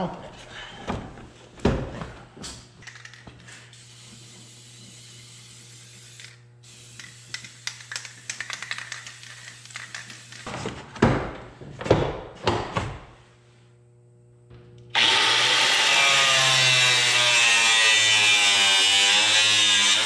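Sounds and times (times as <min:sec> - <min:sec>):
aerosol spray can hissing: 0:03.7 - 0:10.5.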